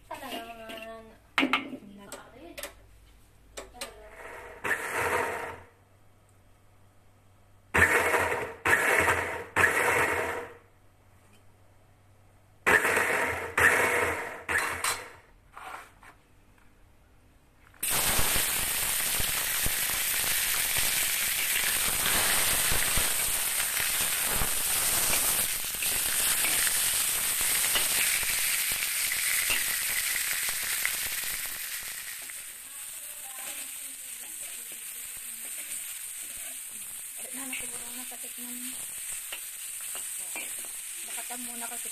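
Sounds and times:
meat sizzling in hot oil: 17.8 - 41.9
metal spatula scraping pan: 37.2 - 38.2.

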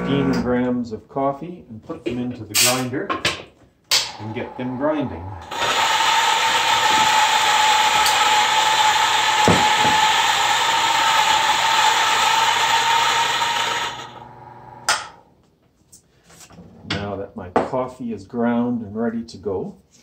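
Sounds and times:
coffee grinder whirring: 4.0 - 14.9.

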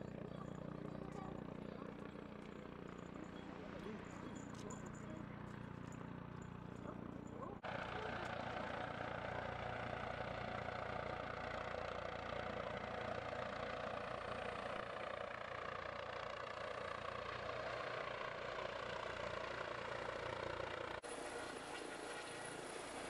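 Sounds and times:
helicopter hovering: 0.0 - 23.0.

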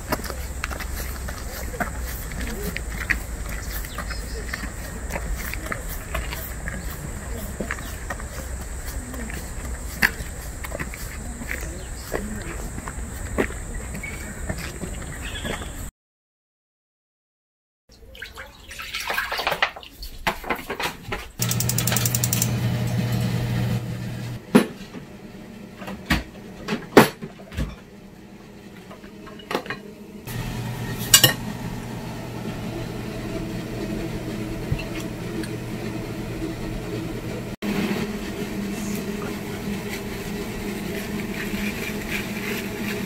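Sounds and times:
plastic containers and dishes clattering: 19.1 - 21.4
low hum: 30.3 - 43.0.

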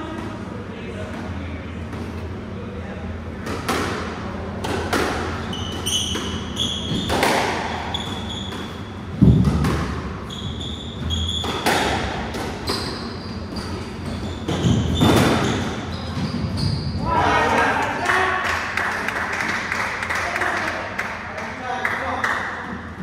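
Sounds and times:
shoes squeaking on wooden floor: 5.4 - 17.0.

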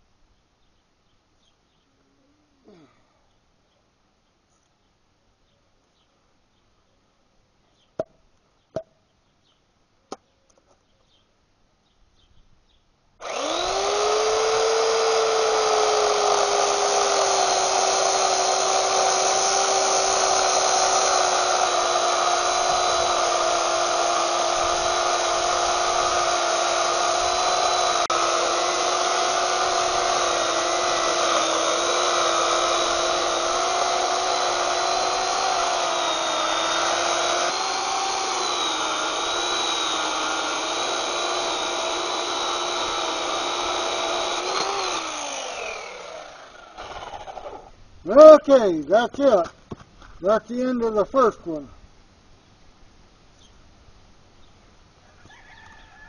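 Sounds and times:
electric chainsaw cutting wood: 13.2 - 47.7.

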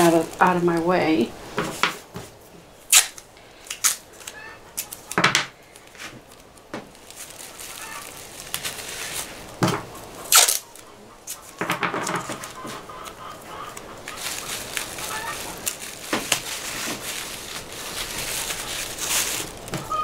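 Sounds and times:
masking tape ripping: 2.9 - 9.6, 10.2 - 20.0
plastic bags crinkling: 2.9 - 20.0
distant chickens squawking: 4.1 - 5.2, 7.4 - 8.3, 9.0 - 20.0.

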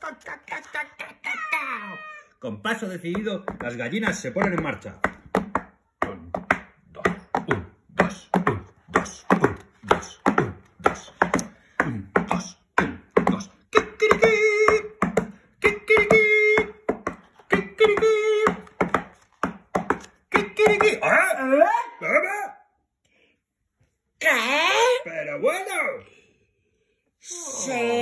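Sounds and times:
person making mouth sounds: 6.0 - 16.8, 17.4 - 18.9.

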